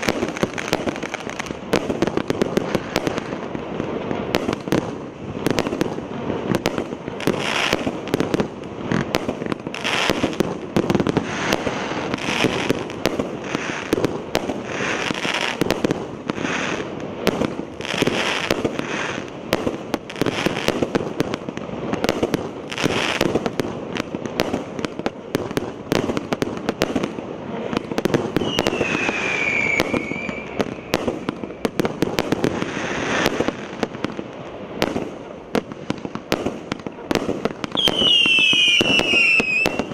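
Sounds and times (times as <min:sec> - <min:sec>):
firework barrage with sharp cracks: 0:00.0 - 0:39.9
falling firework whistle: 0:28.3 - 0:31.7, 0:37.7 - 0:39.9.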